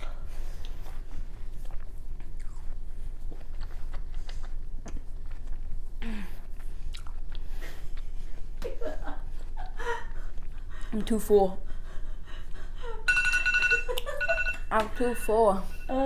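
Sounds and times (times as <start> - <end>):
chewing watermelon: 0.0 - 11.1
wet mouth smacking: 6.5 - 8.1.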